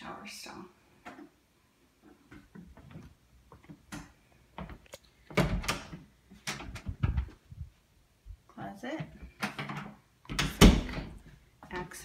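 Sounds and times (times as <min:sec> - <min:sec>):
door clicks and knocks: 0:05.3 - 0:07.4, 0:09.4 - 0:11.2
door knock rattle and thud: 0:06.5 - 0:07.4.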